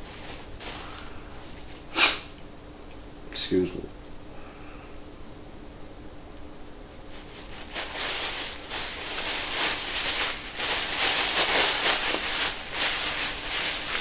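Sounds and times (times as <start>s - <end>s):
plastic bag crinkling: 0.0s - 1.8s, 7.1s - 14.0s.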